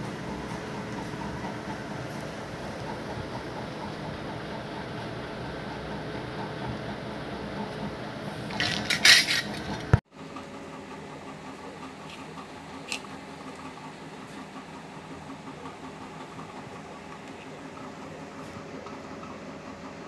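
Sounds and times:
metallic clatter: 8.5s - 10.0s.

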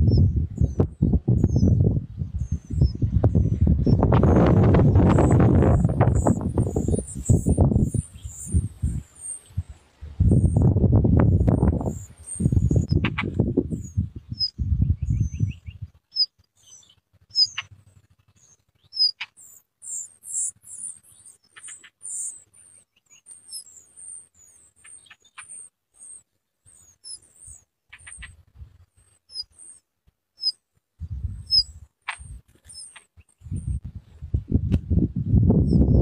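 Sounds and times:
low thumps and rumbles: 0.0s - 9.0s, 10.1s - 16.0s, 33.4s - 36.0s
nestlings begging chirps: 0.0s - 33.8s.

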